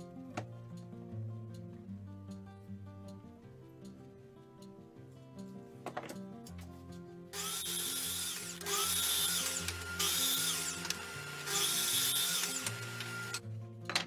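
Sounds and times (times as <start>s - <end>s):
background music: 0.0s - 14.0s
mitre saw cutting wood: 7.4s - 13.4s.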